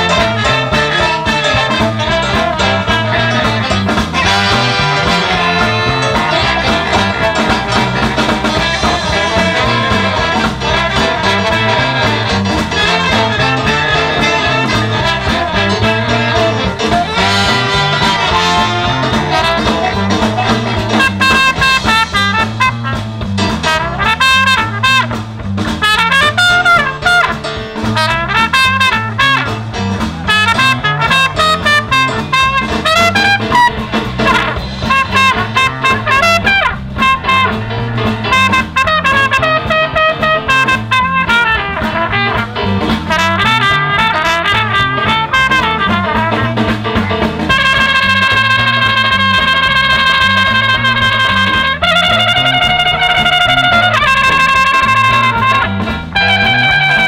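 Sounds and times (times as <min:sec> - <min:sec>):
brass band playing: 0:00.0 - 0:57.0
electric bass line: 0:00.0 - 0:57.0.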